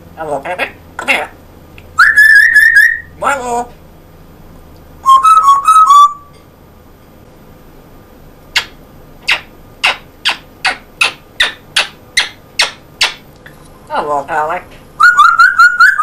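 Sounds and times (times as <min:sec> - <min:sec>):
parrot whistling short notes: 0:05.0 - 0:06.3.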